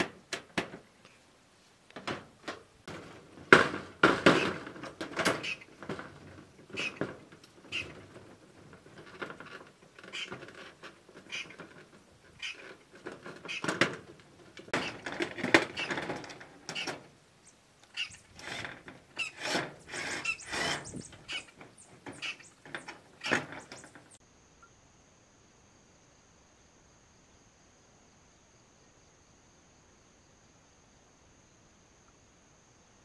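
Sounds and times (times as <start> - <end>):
knocks and scrapes of building work: 0.0 - 17.2, 17.9 - 24.2
faint insect buzz: 24.2 - 33.0.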